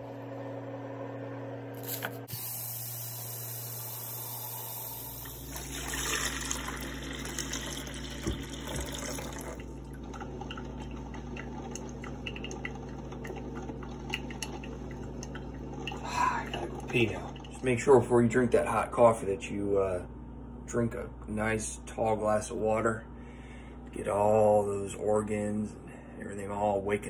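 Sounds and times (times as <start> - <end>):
coffee maker brewing: 0.0 - 19.1
water pouring: 4.0 - 17.9
drips into glass carafe: 5.5 - 17.8.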